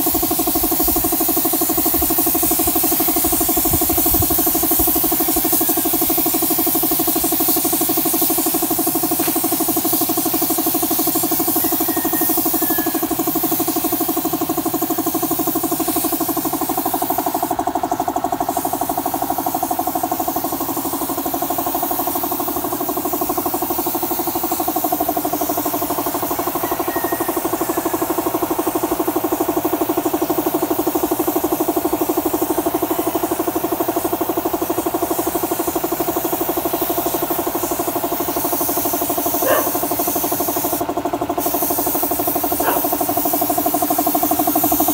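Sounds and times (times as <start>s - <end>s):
air compressor running: 0.0s - 44.9s
spray gun hissing: 0.0s - 44.9s.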